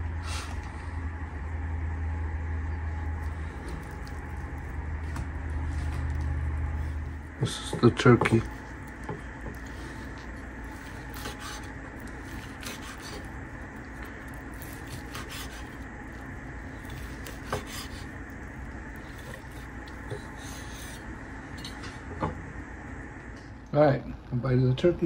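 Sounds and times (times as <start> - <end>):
steady room hum: 0.0 - 25.0
knife sawing through meat: 5.6 - 21.1
knife scraping wooden board: 9.1 - 13.3, 14.6 - 15.8, 16.9 - 18.1.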